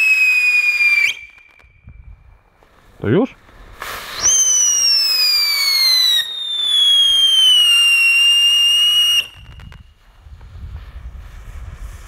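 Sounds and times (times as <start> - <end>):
firework fountain whistling: 0.0 - 1.9, 3.6 - 10.2
faint crackles: 9.3 - 12.0.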